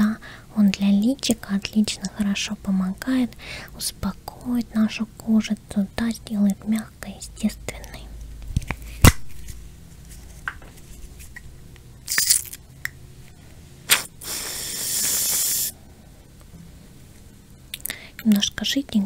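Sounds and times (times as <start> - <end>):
aerosol mousse hissing: 13.9 - 15.8.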